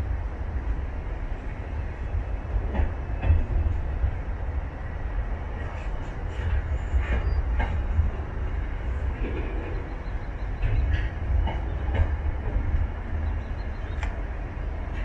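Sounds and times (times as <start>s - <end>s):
freight train rumbling past: 0.0s - 15.0s
wheels clicking on rails: 5.6s - 15.0s.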